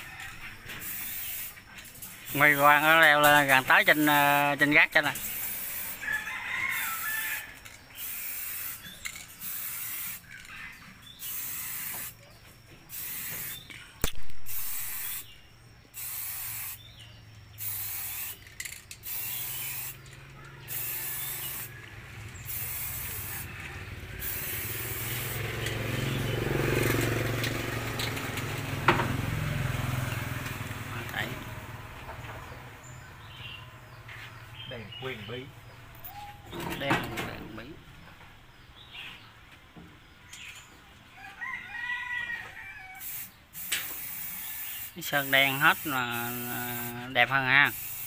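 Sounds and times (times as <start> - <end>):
aerosol spray can hissing: 0.8 - 6.0, 6.7 - 10.4, 11.0 - 12.2, 12.9 - 26.4, 43.0 - 48.0.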